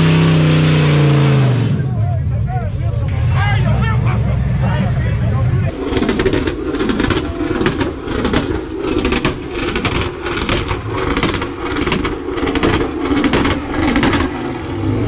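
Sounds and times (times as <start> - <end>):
car engine revving hard: 0.0 - 1.9.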